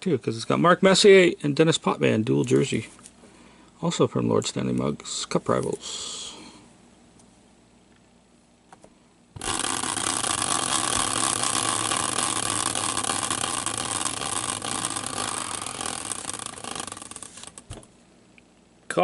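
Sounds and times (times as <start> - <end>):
caster wheel rattling whir: 9.4 - 17.9.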